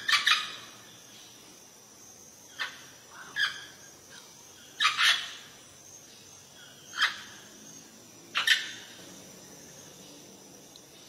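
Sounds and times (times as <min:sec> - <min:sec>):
parrot harsh calls: 0:00.0 - 0:00.5.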